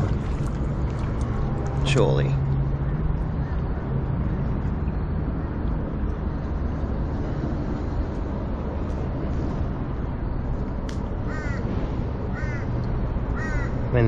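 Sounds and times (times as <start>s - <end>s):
low background rumble: 0.0s - 14.0s
crow cawing: 11.3s - 11.7s, 12.3s - 13.9s.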